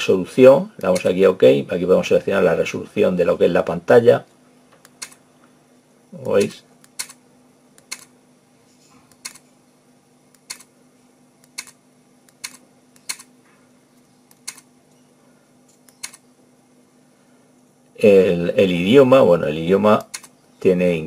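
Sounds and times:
push-buttons clicking: 7.8s - 8.1s, 10.4s - 10.7s, 11.4s - 13.3s, 15.8s - 16.2s.

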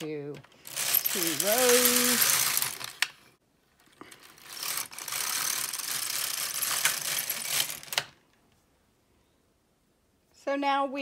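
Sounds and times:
knitting machine carriage rattling: 0.0s - 3.2s, 3.8s - 8.2s.

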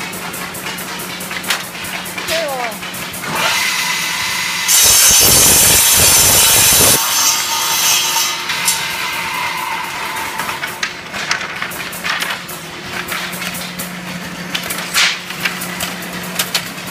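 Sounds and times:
wooden sticks clattering: 0.2s - 3.4s, 10.3s - 16.9s
circular saw cutting wood: 2.1s - 13.4s.

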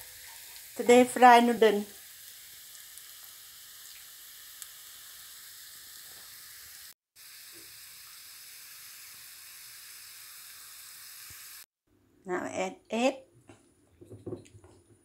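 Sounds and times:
garlic sizzling in oil: 0.0s - 11.7s.

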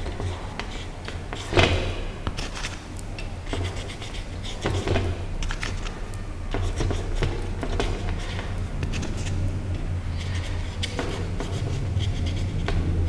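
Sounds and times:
steady low hum: 0.0s - 13.0s
paintbrush scratching on canvas: 3.5s - 5.8s, 6.5s - 9.5s, 10.1s - 13.0s.

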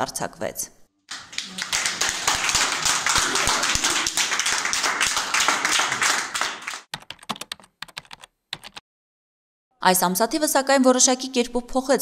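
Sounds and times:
people clapping: 1.1s - 6.9s
keyboard typing clicks: 7.0s - 8.8s.

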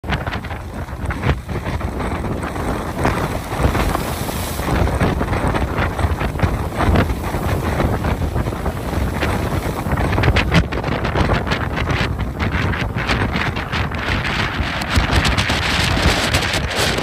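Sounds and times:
storm waves breaking on shore: 0.0s - 17.0s
strong wind gusting: 0.0s - 17.0s.

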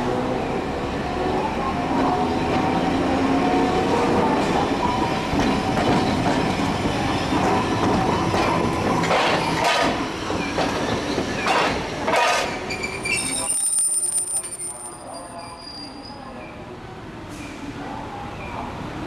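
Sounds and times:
streetcar wheels rumbling over rail joints: 0.0s - 15.8s
wheel squeal: 12.2s - 16.2s.

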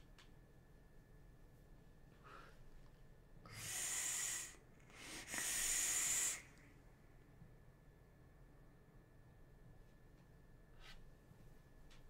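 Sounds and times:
hissing vape draws: 3.6s - 6.5s.

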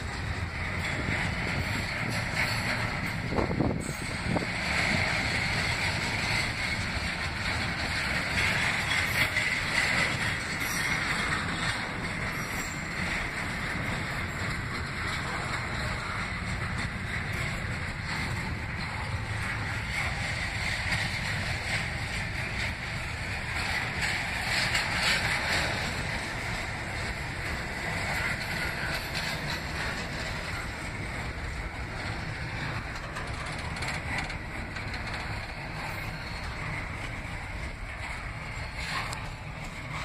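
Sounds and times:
freight train wheels on rails: 0.0s - 40.0s.

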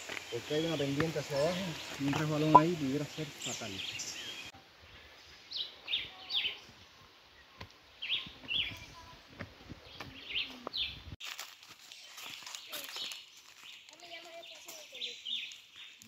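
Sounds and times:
footsteps on rocky trail: 0.0s - 2.8s, 8.2s - 16.0s
bird chirping: 0.2s - 4.6s.

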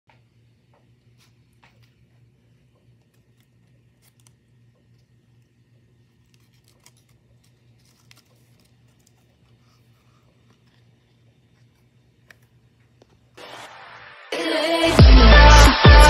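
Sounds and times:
paper crinkling: 1.1s - 13.3s.

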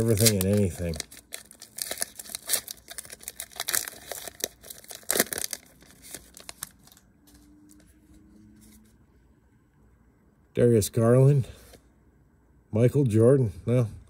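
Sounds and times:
foil wrapper crinkling and tearing: 0.0s - 7.1s.

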